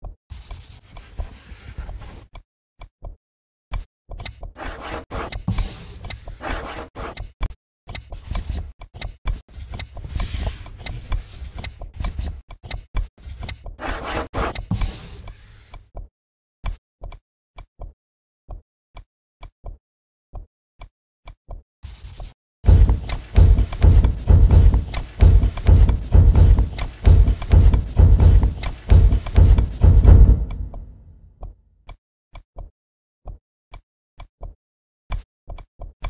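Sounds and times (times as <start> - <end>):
stuttering scratchy noise: 22.7 - 31.0
sharp taps: 22.7 - 31.1.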